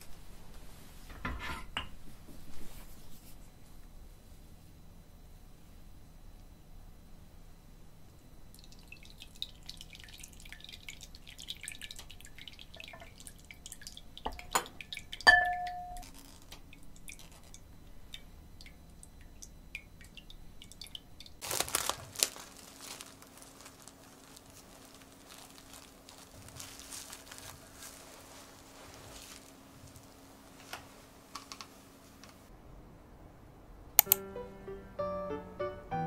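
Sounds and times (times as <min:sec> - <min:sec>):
liquid dripping through strainer: 0:08.5 - 0:21.4
cling film crinkling: 0:16.0 - 0:17.6, 0:21.4 - 0:32.4.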